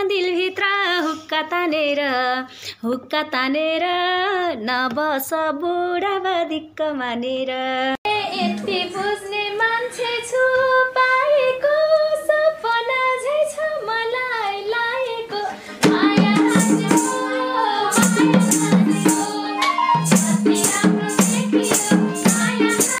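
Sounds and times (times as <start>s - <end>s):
woman singing: 0.0s - 23.0s
folk instrumental music: 15.7s - 23.0s
percussion beat: 15.8s - 23.0s.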